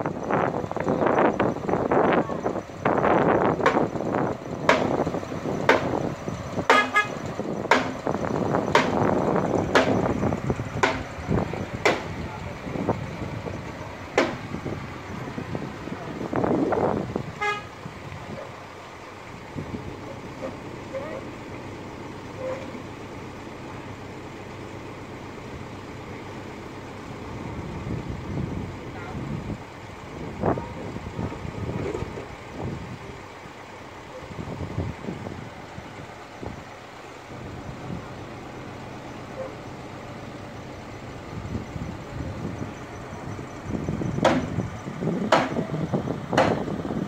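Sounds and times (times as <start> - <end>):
construction machinery running: 0.0 - 47.0
sharp knocks: 4.6 - 5.0, 5.6 - 6.0, 6.7 - 7.0, 7.7 - 8.1, 8.7 - 9.1, 9.7 - 10.1, 10.8 - 11.1, 11.8 - 12.1, 14.2 - 14.4, 44.2 - 44.6, 45.3 - 45.7, 46.3 - 46.7.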